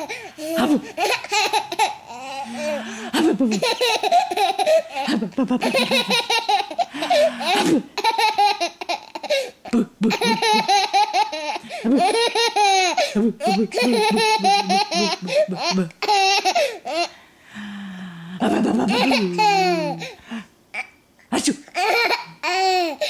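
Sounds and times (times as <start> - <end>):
baby laughing: 0.0 - 17.1, 18.4 - 20.2, 21.7 - 23.0.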